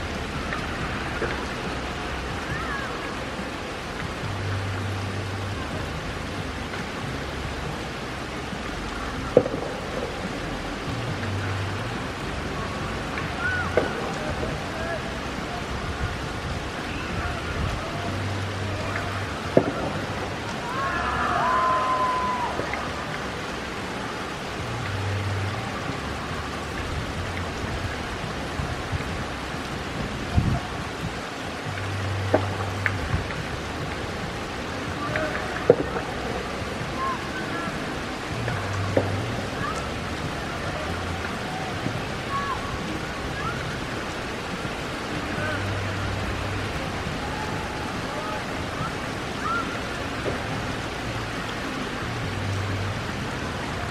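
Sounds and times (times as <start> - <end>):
rain falling on pavement: 0.0 - 53.9.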